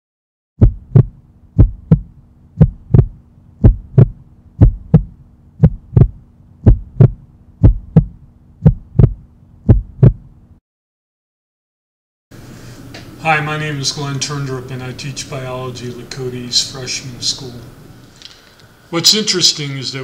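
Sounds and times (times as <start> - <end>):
heartbeat thumps: 0.6 - 10.4
faint steady hum: 0.6 - 10.6, 12.4 - 20.0.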